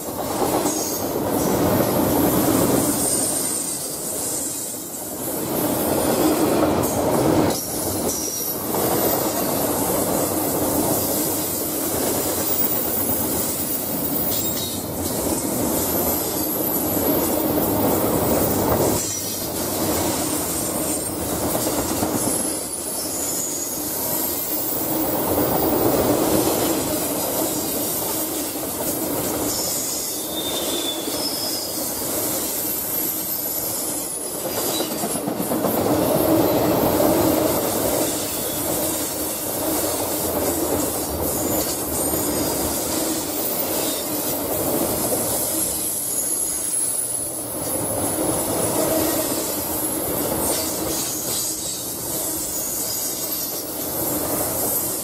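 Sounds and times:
train wheels rumbling on rail: 0:00.0 - 0:55.0
high-pitched wheel squeals: 0:29.5 - 0:35.1.

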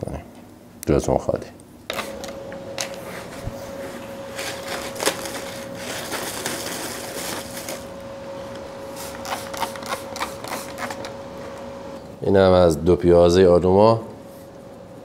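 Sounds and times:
plastic bag crinkling: 0:04.2 - 0:07.9.

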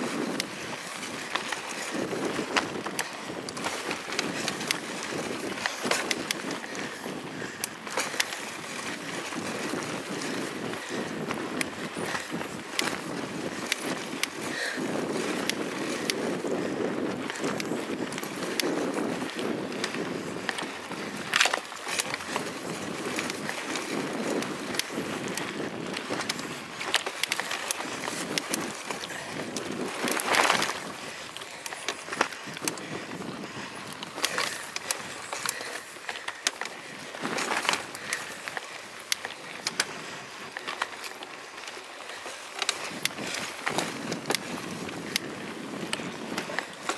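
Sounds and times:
bike tyre rumble on dirt: 0:00.0 - 0:46.9.

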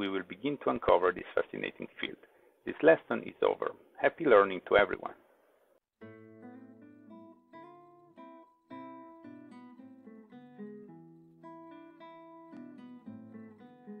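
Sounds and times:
plucked guitar chords: 0:06.0 - 0:14.0.

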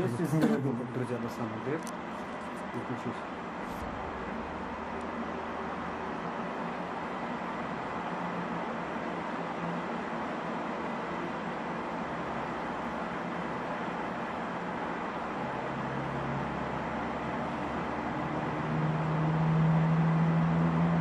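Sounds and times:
low hum: 0:03.3 - 0:07.0.

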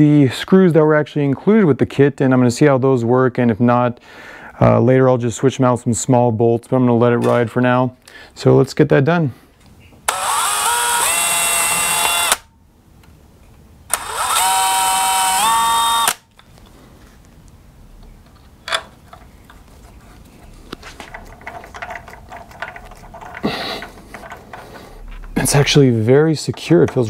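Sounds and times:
cordless drill whine: 0:10.1 - 0:12.5, 0:13.9 - 0:16.2.

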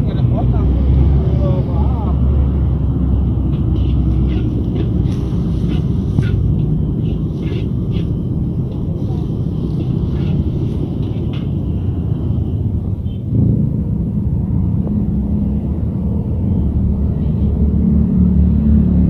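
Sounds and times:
gas burner rumbling: 0:00.0 - 0:18.9
metal spatula scraping a wok: 0:03.5 - 0:12.1.

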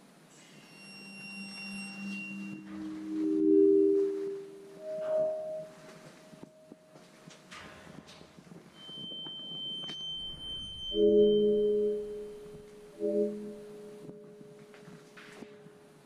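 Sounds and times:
thin high held tone: 0:00.3 - 0:06.8, 0:08.9 - 0:14.5
low ringing chords: 0:00.7 - 0:07.3, 0:09.8 - 0:16.0.

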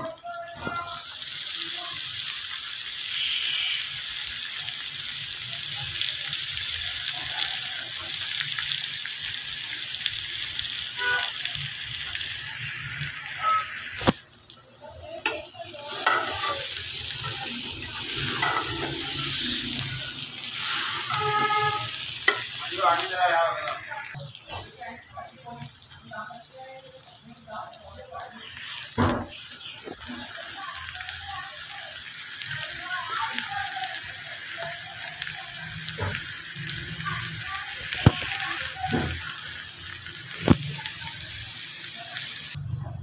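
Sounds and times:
vegetables sizzling in oil: 0:00.0 - 0:42.7
metal spoon scraping pot: 0:15.3 - 0:16.8.

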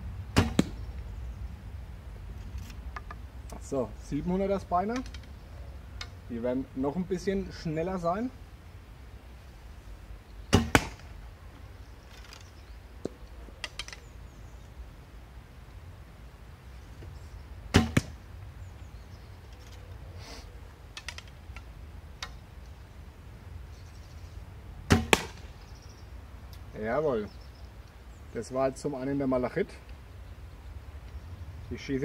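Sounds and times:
arrow striking straw target: 0:00.3 - 0:00.9, 0:10.5 - 0:11.2, 0:17.7 - 0:18.2, 0:24.8 - 0:25.6
bow string slap: 0:17.8 - 0:18.2, 0:24.9 - 0:25.5.

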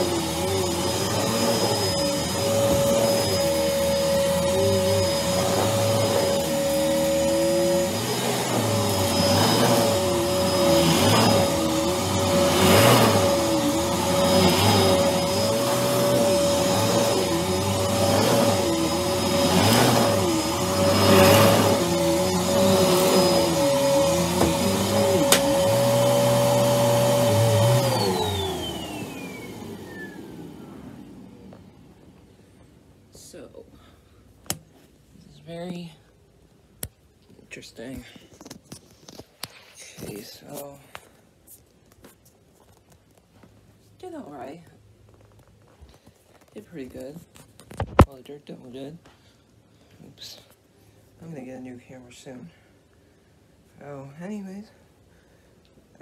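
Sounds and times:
vacuum motor spinning down: 0:00.0 - 0:31.6
vacuum cleaner running: 0:00.0 - 0:32.4.

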